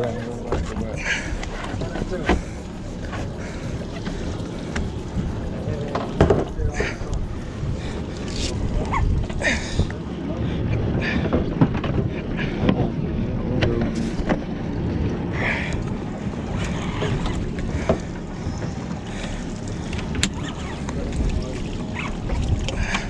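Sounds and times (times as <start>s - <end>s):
sea: 0.0s - 23.0s
wind: 0.0s - 23.0s.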